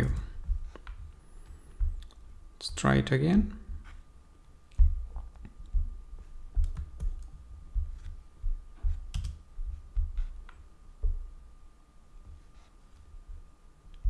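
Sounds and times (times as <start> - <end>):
computer keys and mouse clicking: 6.6 - 7.3, 9.1 - 9.4.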